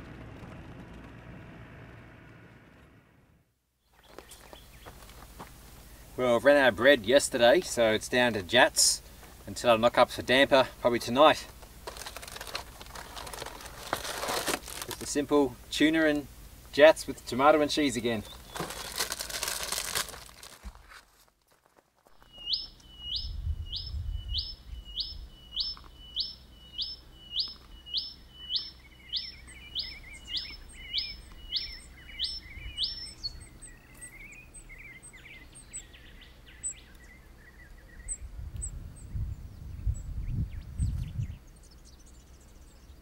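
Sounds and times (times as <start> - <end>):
birds chirping and twittering: 3.8 - 20.5, 22.1 - 43.0
bird calling short rising whistles: 22.2 - 38.2.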